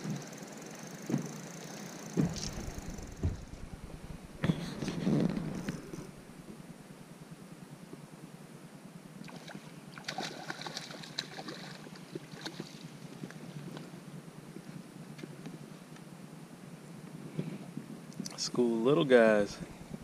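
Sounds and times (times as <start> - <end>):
steady low hum: 0.0 - 20.0
fish splashing at water surface: 9.3 - 12.7.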